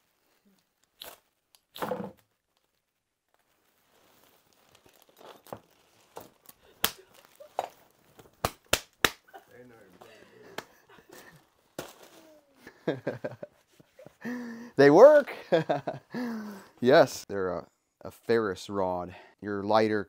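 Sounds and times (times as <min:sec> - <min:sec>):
plastic packaging crinkling: 0:00.6 - 0:08.4.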